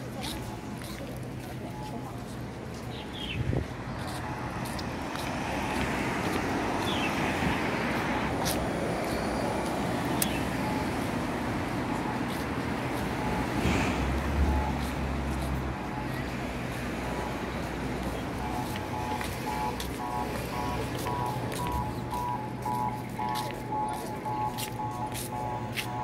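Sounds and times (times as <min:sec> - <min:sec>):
road traffic passing: 0:00.0 - 0:26.0.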